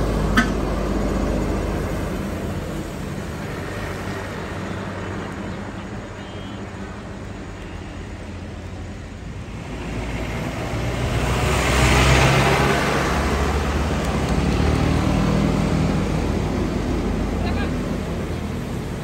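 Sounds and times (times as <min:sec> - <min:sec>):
diesel truck engine running: 0:00.0 - 0:19.0
vehicle passing: 0:09.4 - 0:19.0.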